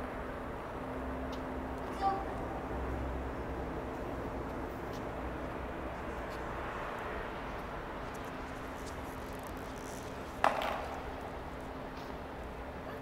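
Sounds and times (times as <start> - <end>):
steady background hum: 0.0 - 13.0
skateboard clacking on tiles: 10.4 - 11.3.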